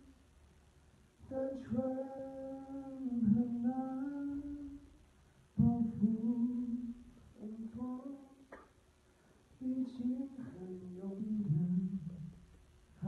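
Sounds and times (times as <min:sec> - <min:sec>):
man singing long held notes: 0:01.3 - 0:04.8, 0:05.6 - 0:08.4.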